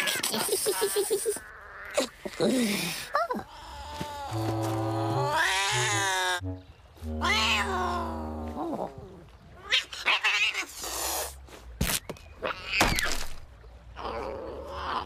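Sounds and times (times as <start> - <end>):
low held tones: 4.3 - 8.8
cat yowling: 7.2 - 8.0.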